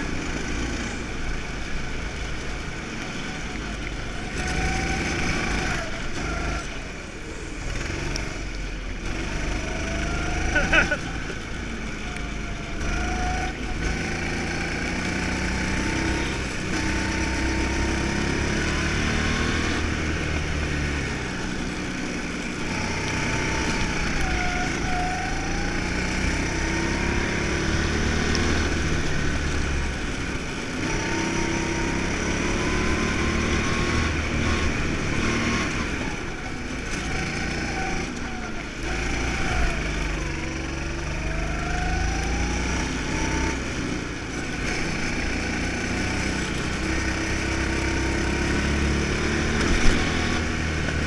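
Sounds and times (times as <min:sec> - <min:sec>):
go-kart engine running hard: 0:00.0 - 0:51.0.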